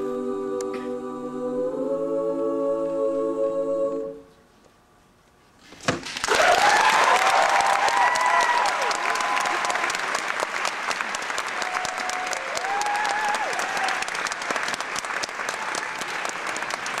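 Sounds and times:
audience applauding: 6.0s - 17.0s
cheering calls: 6.2s - 10.5s, 11.4s - 14.3s.

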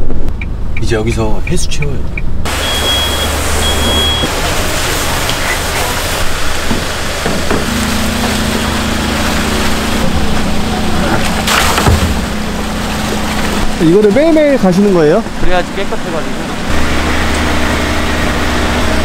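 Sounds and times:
steady hum: 2.1s - 19.0s
water rushing from a hose: 2.5s - 19.0s
short high beeps: 2.6s - 4.3s.

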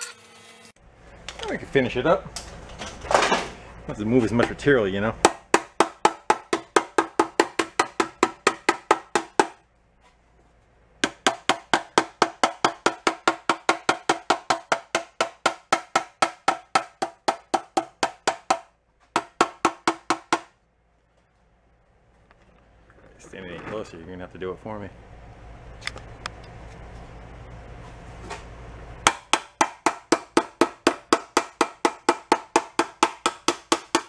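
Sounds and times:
hammer tapping on sheet metal: 5.2s - 9.6s, 11.0s - 20.6s, 29.0s - 34.0s.

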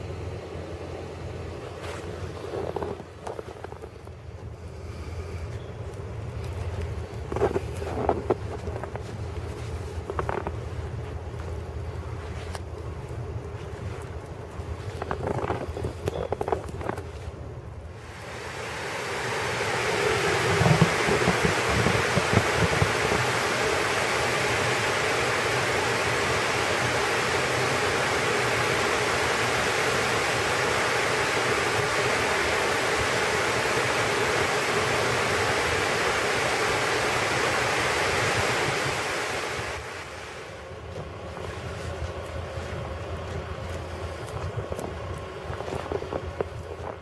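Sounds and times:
wind thumps on microphone: 1.8s - 4.2s, 6.4s - 17.4s, 20.0s - 23.7s, 41.0s - 47.0s
water pouring over spillway: 18.0s - 40.3s.

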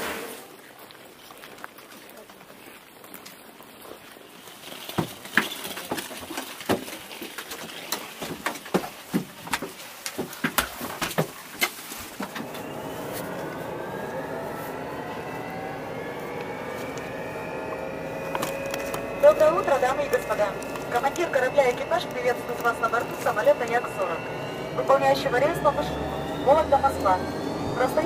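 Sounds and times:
footsteps on metal stairs: 4.9s - 12.6s
cabin hum with rising whine: 12.2s - 28.0s.

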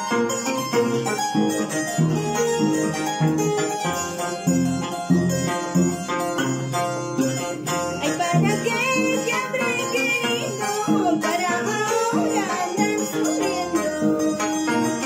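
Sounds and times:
harp plucking: 0.0s - 15.0s
woman singing: 8.0s - 15.0s.

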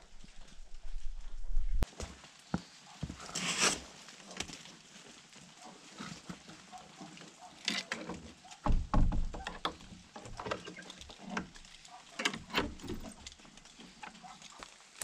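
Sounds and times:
wooden door knocking: 8.6s - 9.6s
metal lock and keys rattling: 12.1s - 13.4s.

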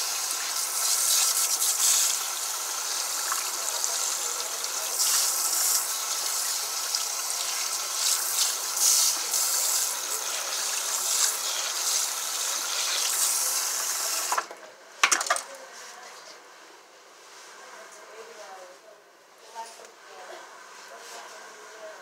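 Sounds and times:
sprayer hissing water on hair: 0.0s - 14.5s.

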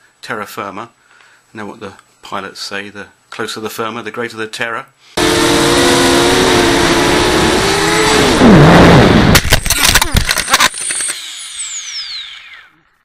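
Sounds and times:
drone motors whining: 5.2s - 13.0s
drone crashing and tumbling: 6.6s - 12.2s.

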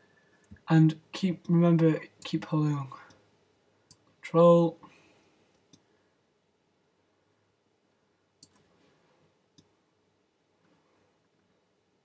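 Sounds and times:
computer mouse clicks: 8.4s - 8.7s.

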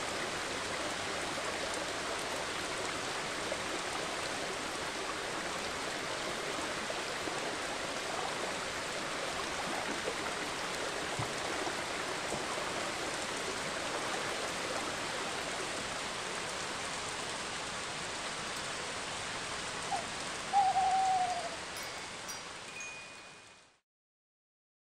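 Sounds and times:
rushing water: 0.0s - 23.8s
owl hoot: 19.8s - 21.7s.

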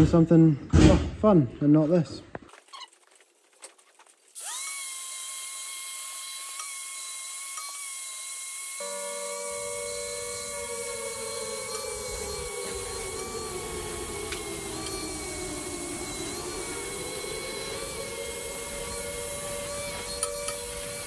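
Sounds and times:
angle grinder motor whine: 4.4s - 21.0s
lower motor whine: 8.6s - 21.0s
grinding on steel pipe: 8.8s - 21.0s.

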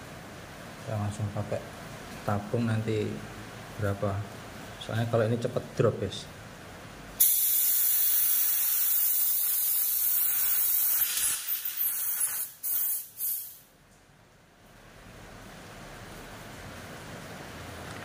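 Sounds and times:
compressed air hissing: 7.2s - 13.7s.

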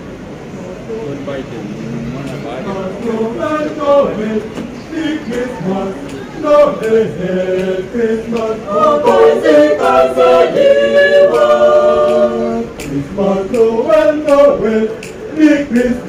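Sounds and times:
a cappella choir singing: 2.6s - 16.0s.

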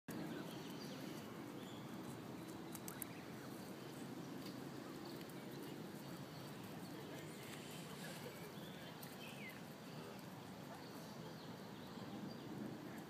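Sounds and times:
light clicks: 2.7s - 3.2s.

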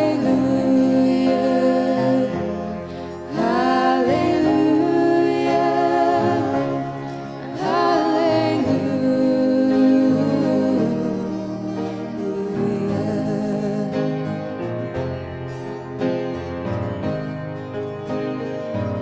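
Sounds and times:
women singing worship song: 0.0s - 14.4s
acoustic guitars: 0.0s - 19.0s.

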